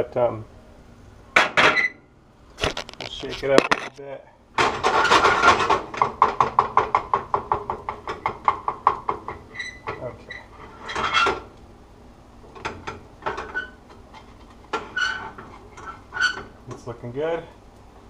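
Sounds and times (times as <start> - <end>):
frying pan clattering on stovetop: 4.6 - 9.5.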